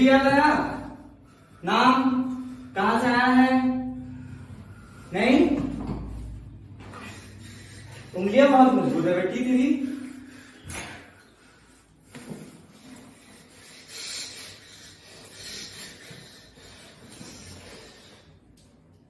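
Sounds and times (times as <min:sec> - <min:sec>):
hissing breaths through teeth: 0:03.8 - 0:08.6, 0:09.8 - 0:18.8.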